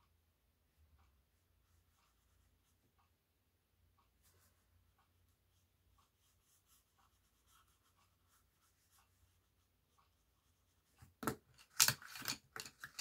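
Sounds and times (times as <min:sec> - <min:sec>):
colouring tip scratching paper: 0:05.5 - 0:11.0
pencils clattering on desk: 0:11.0 - 0:13.0.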